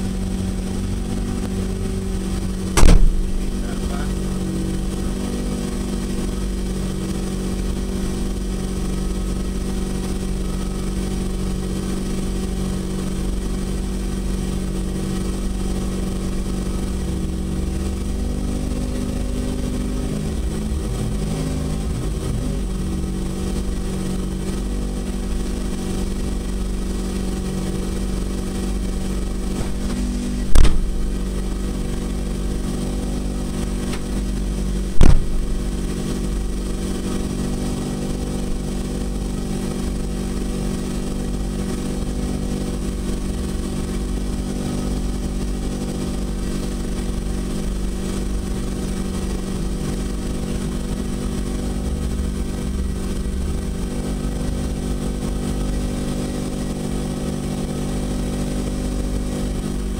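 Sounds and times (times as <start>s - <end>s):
car engine idling: 0.0s - 59.9s
short loud engine burst: 2.6s - 4.1s, 29.5s - 31.7s, 34.9s - 35.8s.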